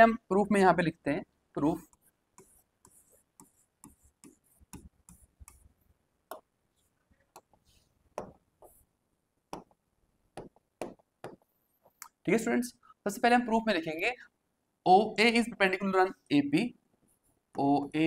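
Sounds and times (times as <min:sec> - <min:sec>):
stylus tapping on glass screen: 0:07.4 - 0:08.8, 0:09.5 - 0:09.8, 0:10.4 - 0:12.0.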